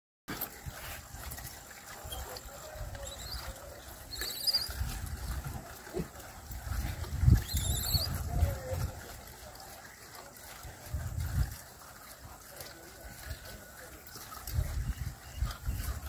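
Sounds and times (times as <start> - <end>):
wind on microphone: 0.6 - 9.4, 10.6 - 11.8, 14.4 - 16.0.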